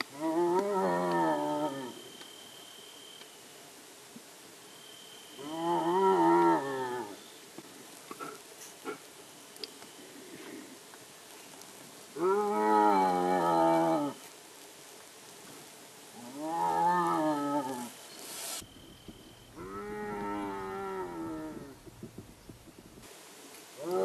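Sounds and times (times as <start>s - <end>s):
hyena calling: 18.6s - 23.0s.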